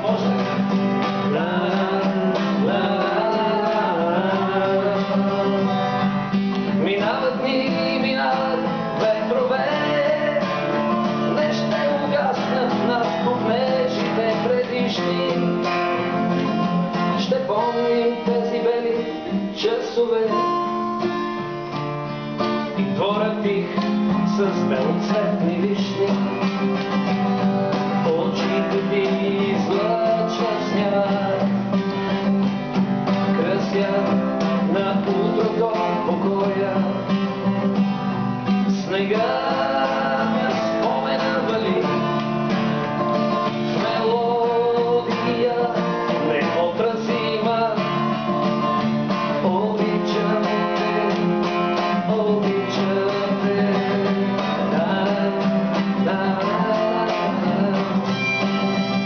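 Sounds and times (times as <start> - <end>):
acoustic guitar strumming: 0.0 - 59.0
harmonica melody: 56.6 - 59.0.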